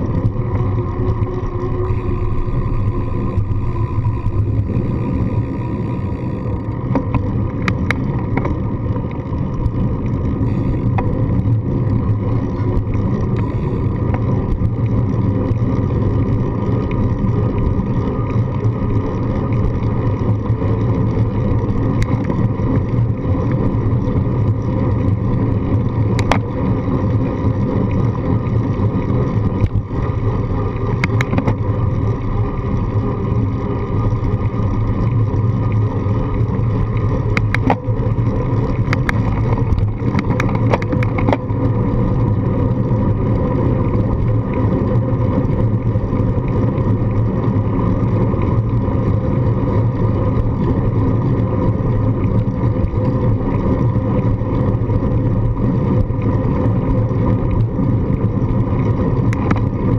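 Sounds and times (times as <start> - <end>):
bicycle tyres on pavement: 0.0 - 59.9
wind buffeting a camera: 0.0 - 59.9
sharp clicks or rattles: 1.1 - 12.1, 26.1 - 26.5, 30.9 - 31.7, 37.2 - 41.5.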